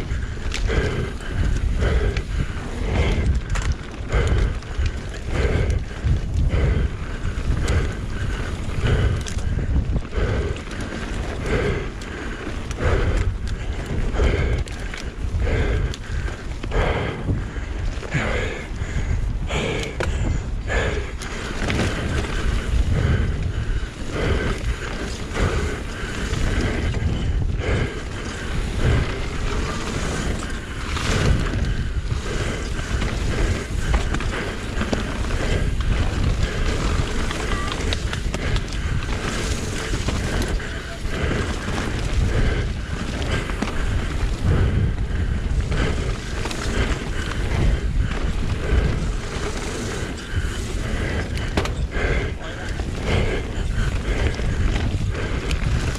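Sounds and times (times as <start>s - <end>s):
bike knocking and rattling: 0.0s - 55.9s
tyres rumbling over dirt and rocks: 0.0s - 55.9s
wind noise on microphone: 0.0s - 55.9s.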